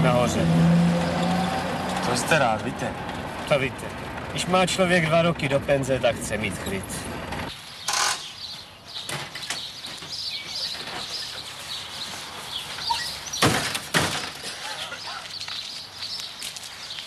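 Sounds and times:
small birds chirping: 7.5 - 13.6, 14.5 - 17.0.

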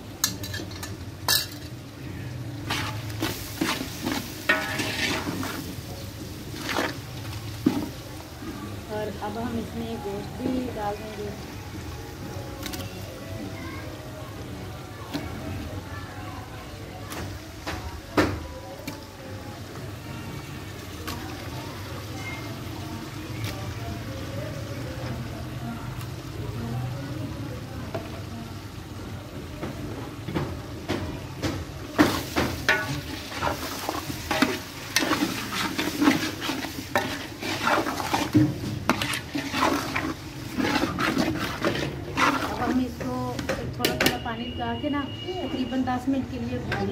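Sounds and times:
frying sizzle: 0.0 - 46.9
metal ladle scraping and knocking pot: 3.6 - 5.6, 32.0 - 44.1.

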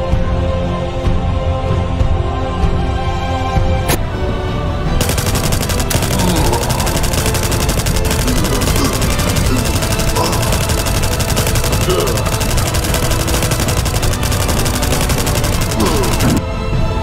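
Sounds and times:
automatic rifle fire: 5.0 - 16.4.

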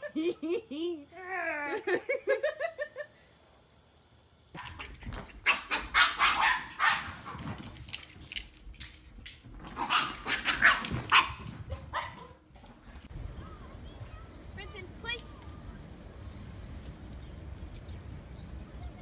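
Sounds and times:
dog barking: 4.6 - 7.3, 9.8 - 12.4.

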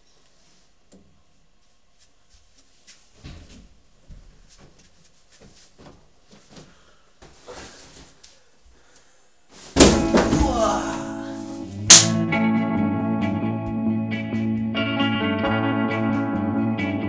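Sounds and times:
cardboard box bumps and scrapes: 9.6 - 10.8.

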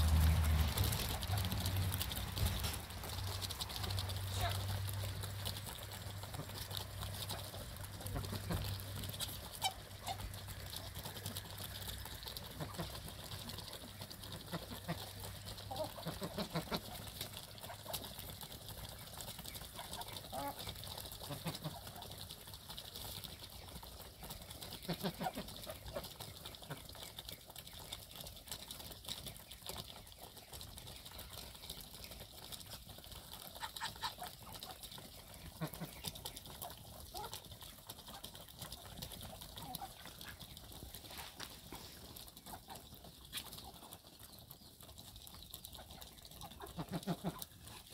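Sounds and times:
birds pecking grain: 0.0 - 47.9
chickens clucking softly: 0.2 - 47.9.

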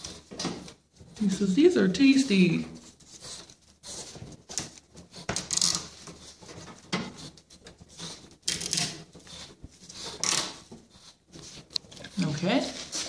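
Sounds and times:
plastic parts rattling: 8.4 - 9.1.

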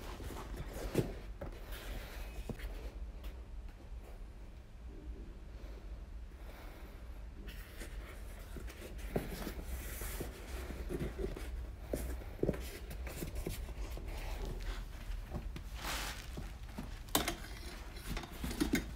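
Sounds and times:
hands rubbing inflatable decoy: 8.9 - 17.1.

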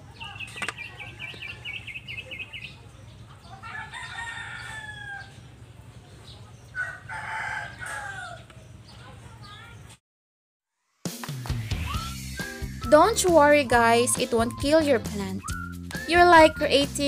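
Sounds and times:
rooster crowing: 3.6 - 5.5, 6.7 - 8.5.

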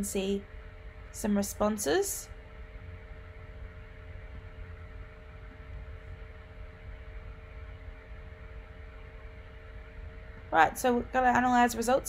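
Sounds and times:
faint hum and hiss: 0.0 - 12.0
low rumble: 0.0 - 12.0.

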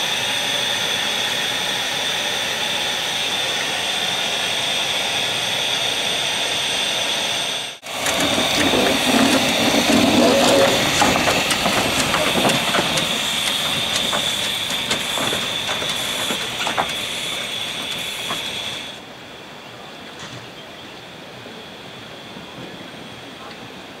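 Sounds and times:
steam hissing: 0.0 - 19.0
train wheels clicking on rails: 0.0 - 19.0.

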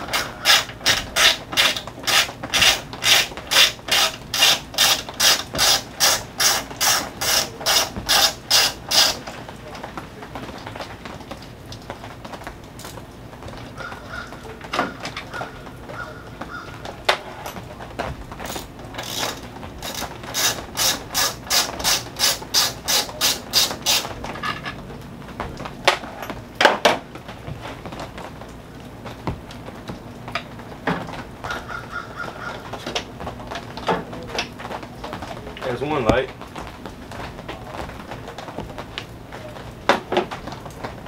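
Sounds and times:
socket ratchet clicking: 0.2 - 9.2, 19.0 - 24.1
tool clicks: 0.2 - 9.2.

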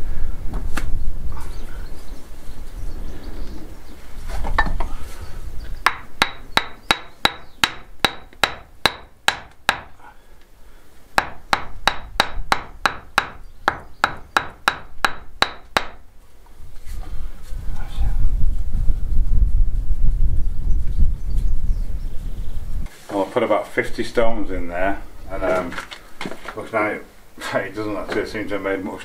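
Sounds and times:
hammer tapping stones: 5.9 - 9.9, 11.2 - 16.0.

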